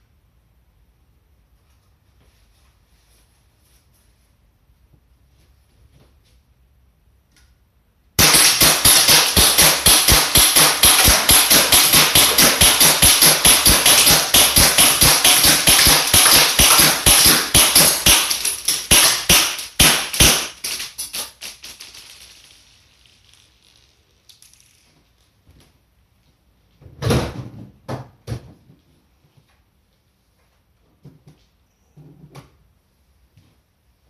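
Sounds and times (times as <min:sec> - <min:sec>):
airsoft pistol shots: 0:08.2 - 0:20.8.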